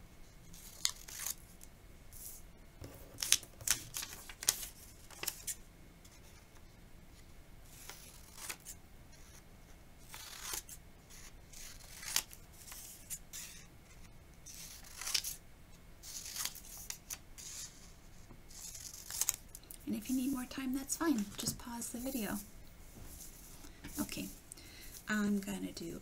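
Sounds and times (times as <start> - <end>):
paper rustling: 2.2 - 6.6, 7.7 - 9.4, 10.1 - 15.4, 16.0 - 20.4
scissors snipping paper: 10.1 - 13.6, 14.5 - 15.4.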